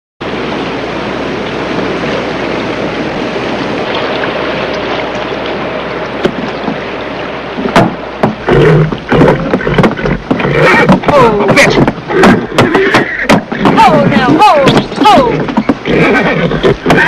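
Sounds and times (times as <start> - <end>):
river water rushing: 0.2 - 17.0
sharp knock: 7.7 - 8.4.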